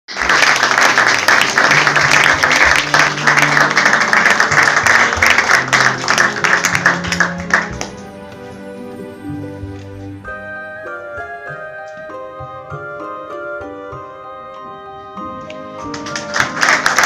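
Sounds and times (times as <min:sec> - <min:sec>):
audience clapping: 0:00.1 - 0:08.0, 0:15.4 - 0:17.0
background music: 0:00.1 - 0:17.0.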